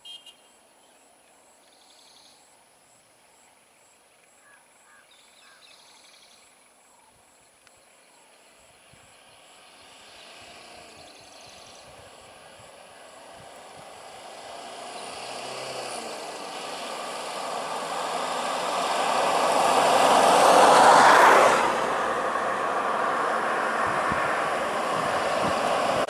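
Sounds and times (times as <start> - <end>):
vehicle passing by: 8.9 - 26.0.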